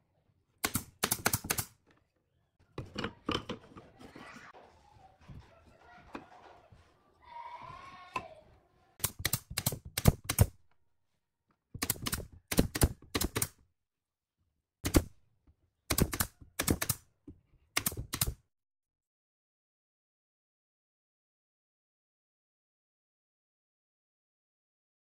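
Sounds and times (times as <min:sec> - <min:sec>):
nail gun firing into wood: 0:00.6 - 0:01.8, 0:09.0 - 0:10.5, 0:11.8 - 0:13.6, 0:14.8 - 0:15.1, 0:15.9 - 0:17.0.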